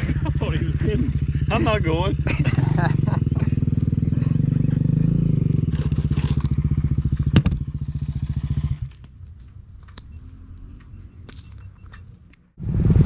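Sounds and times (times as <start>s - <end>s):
engine idling with steady chug: 0.0s - 7.7s
faint engine rumble: 0.0s - 13.0s.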